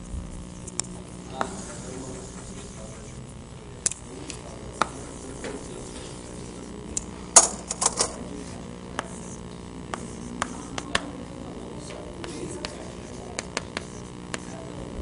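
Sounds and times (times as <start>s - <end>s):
chalk tapping on blackboard: 0.7s - 3.1s, 4.2s - 6.7s, 7.9s - 11.2s, 12.2s - 14.6s.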